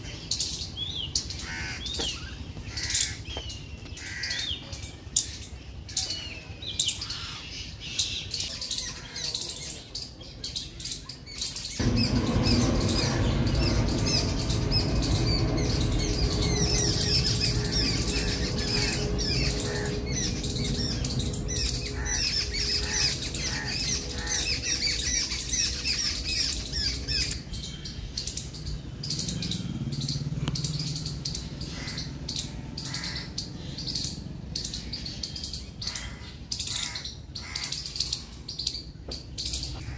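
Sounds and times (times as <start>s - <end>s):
small birds chirping: 0.0s - 39.9s
steady low rumble: 11.8s - 36.2s.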